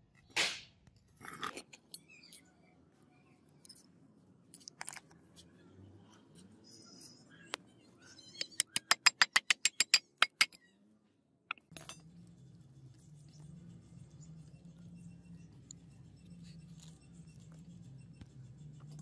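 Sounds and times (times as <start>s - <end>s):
hammer tapping steel punch: 8.4s - 10.6s
handling clicks and knocks: 8.4s - 10.6s.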